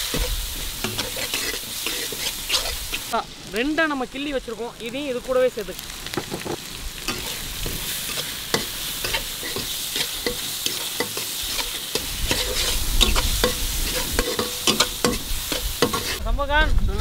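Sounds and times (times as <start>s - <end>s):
metal spatula scraping iron pan: 0.0s - 3.1s, 7.1s - 16.2s
food sizzling in hot oil: 0.0s - 16.2s.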